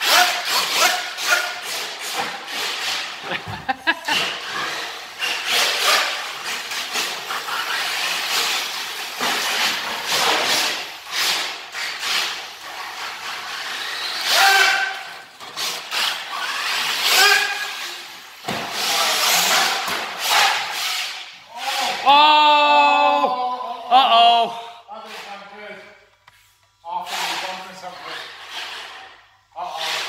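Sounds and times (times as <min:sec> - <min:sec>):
rc car running: 0:00.0 - 0:03.4, 0:04.1 - 0:21.4, 0:27.0 - 0:30.0.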